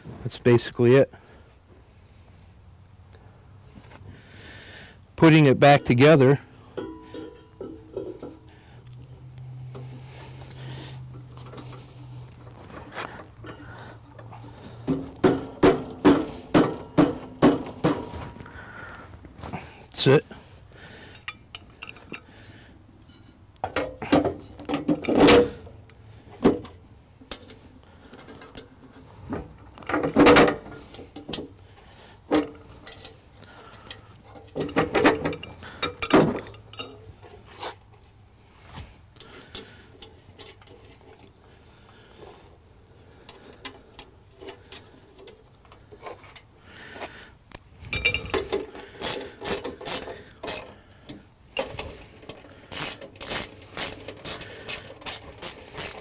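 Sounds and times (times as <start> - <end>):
metal parts clanking and scraping: 5.5 - 8.6, 9.6 - 18.5, 20.9 - 22.3, 23.0 - 31.5, 32.3 - 41.5, 47.8 - 56.0.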